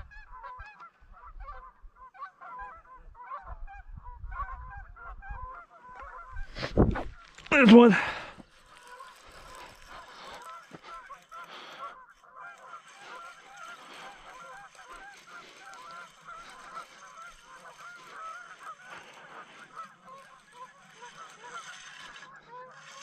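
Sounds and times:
distant chorus of honking calls: 7.9 - 23.0.

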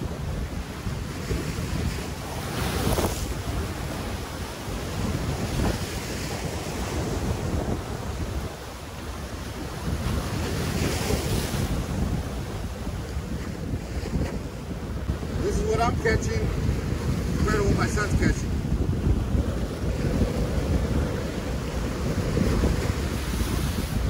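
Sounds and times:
surf breaking on rocks: 0.0 - 24.0
wind buffeting microphone: 0.0 - 24.0.

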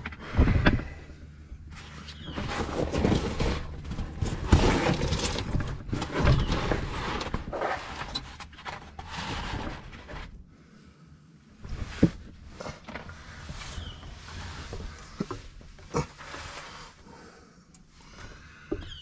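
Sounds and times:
cardboard scraping on ground: 1.7 - 10.4, 11.7 - 16.9.

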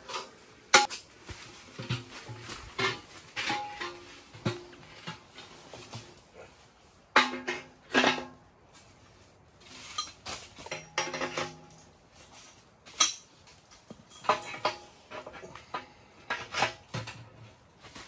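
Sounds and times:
metal knocks and scrapes: 0.0 - 6.2, 7.1 - 8.5, 9.7 - 11.9, 13.9 - 17.6.

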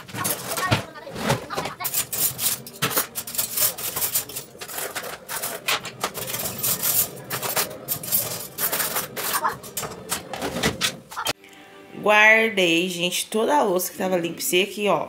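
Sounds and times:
cutlery clinking and clattering: 0.0 - 11.3.

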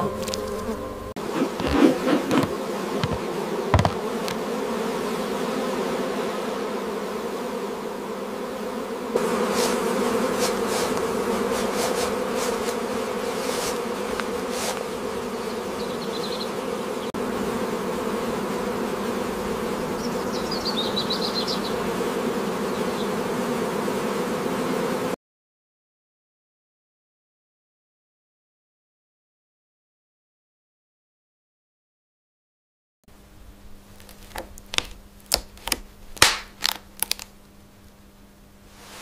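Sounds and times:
honeybees buzzing: 0.0 - 25.2.

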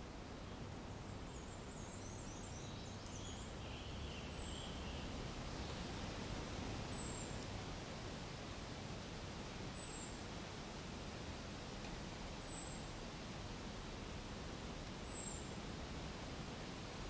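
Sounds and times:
low background noise: 0.0 - 17.0
small birds singing: 1.3 - 5.2.

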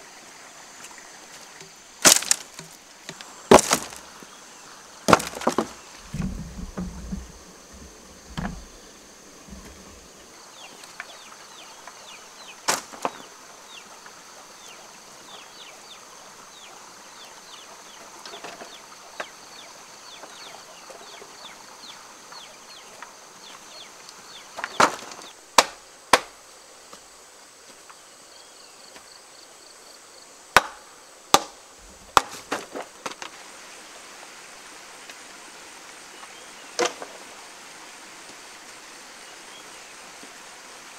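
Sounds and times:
wooden planks knocking and clattering: 1.6 - 4.0, 5.0 - 10.1, 12.7 - 13.3, 24.5 - 26.3, 32.0 - 33.4.

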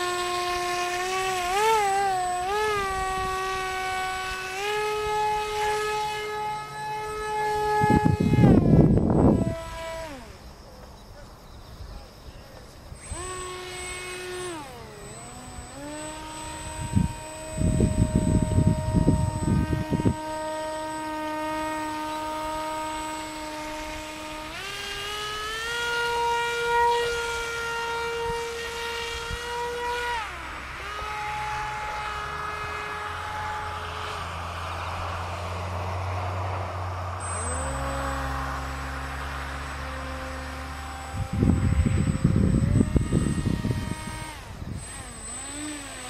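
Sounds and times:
wind rumble on microphone: 0.0 - 10.4, 11.5 - 46.0
electric motor and propeller whining: 0.0 - 46.0
rushing noise: 33.7 - 39.8.

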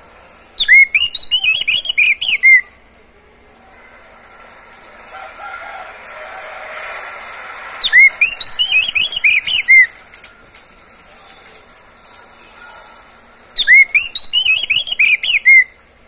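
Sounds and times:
bird singing whistled notes: 0.6 - 2.7, 7.8 - 10.0, 13.6 - 15.8.

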